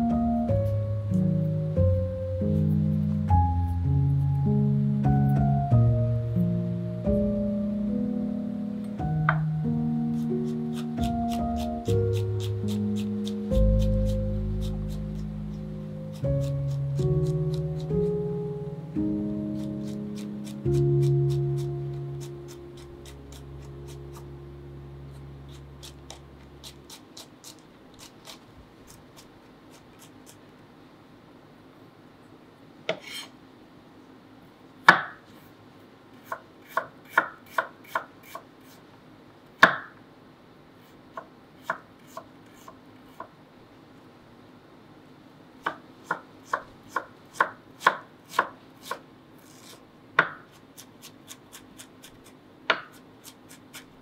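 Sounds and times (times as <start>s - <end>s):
knife chopping on wooden board: 34.9s - 35.2s, 36.2s - 38.4s, 39.6s - 39.9s, 45.6s - 49.0s, 49.6s - 53.9s.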